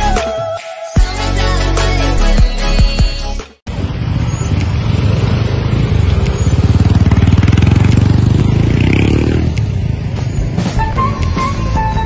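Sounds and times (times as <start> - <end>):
motorcycle engine revving: 3.7 - 10.8
street traffic: 3.7 - 12.0.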